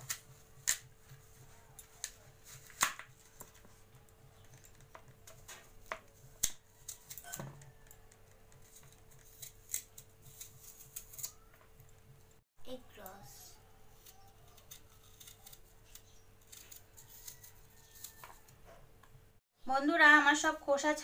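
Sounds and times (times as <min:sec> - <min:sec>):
knife cutting apple: 0:04.4 - 0:11.8, 0:14.0 - 0:18.8.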